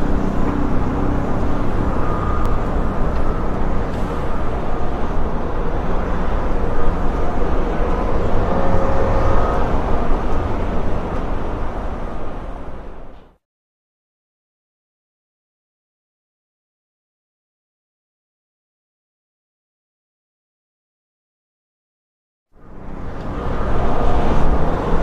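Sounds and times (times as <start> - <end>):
faint whining tones: 0.0 - 13.4, 22.6 - 25.0
heavy machinery engine rumble: 0.0 - 13.4, 22.6 - 25.0.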